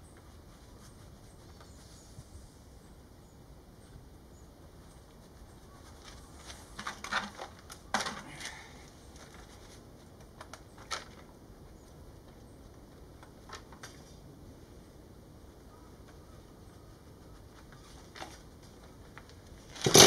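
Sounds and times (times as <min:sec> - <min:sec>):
handling rustles and clicks: 0:05.7 - 0:11.3, 0:17.2 - 0:20.0.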